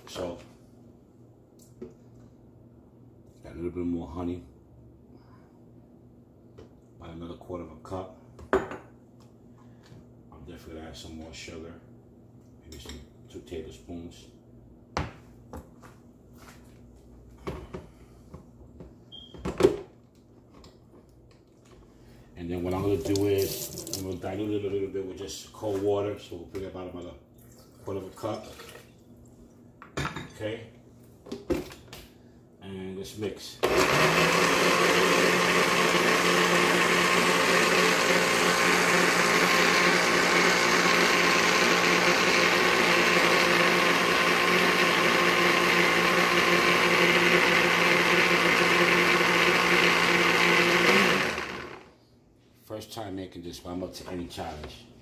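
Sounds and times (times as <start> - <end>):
blender running: 22.6 - 24.1, 33.6 - 51.9.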